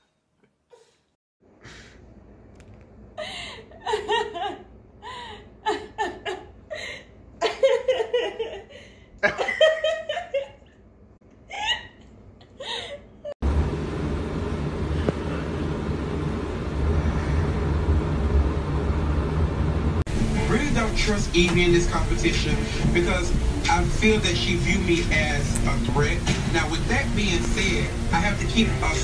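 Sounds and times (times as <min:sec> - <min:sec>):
person laughing: 0:03.2 - 0:10.7, 0:11.5 - 0:13.4.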